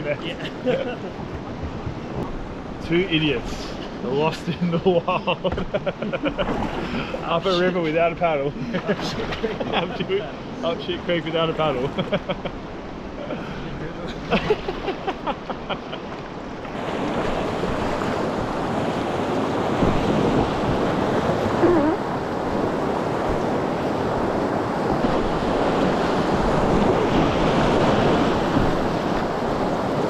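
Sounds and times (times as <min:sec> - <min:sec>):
whitewater rushing: 0:06.4 - 0:30.0.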